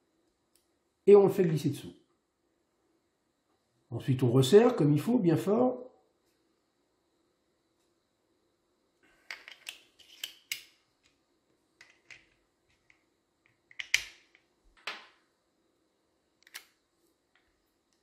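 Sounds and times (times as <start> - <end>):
metal parts clicking: 9.3 - 10.7.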